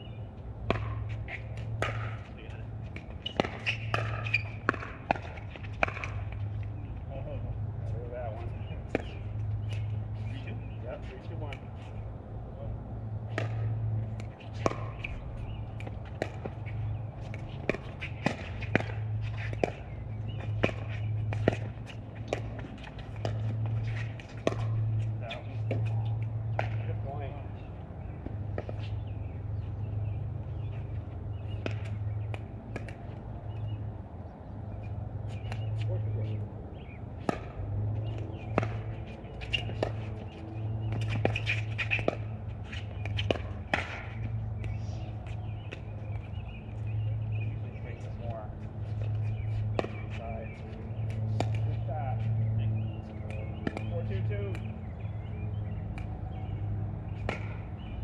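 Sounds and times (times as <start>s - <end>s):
faint birds chirping: 0.0s - 58.0s
footsteps on court: 13.3s - 33.8s, 37.2s - 57.7s
paddles hitting plastic ball: 53.3s - 54.8s.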